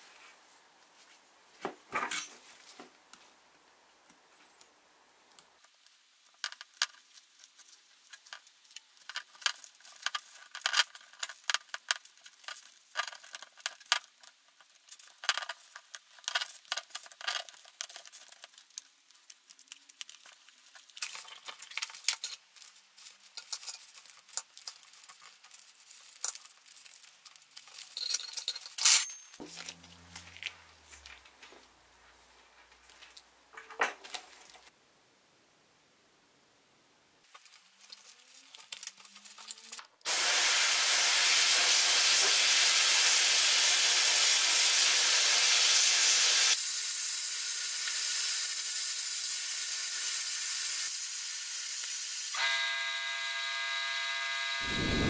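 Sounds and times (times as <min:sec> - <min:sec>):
small hard objects clicking and clinking: 0:05.6 - 0:31.4, 0:37.3 - 0:40.1.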